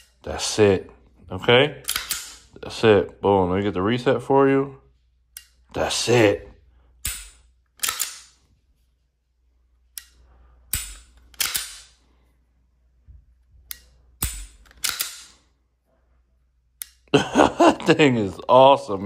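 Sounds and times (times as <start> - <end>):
pistol slide and trigger clacks: 1.8 - 2.5, 7.0 - 8.4, 10.0 - 12.0, 13.7 - 15.4.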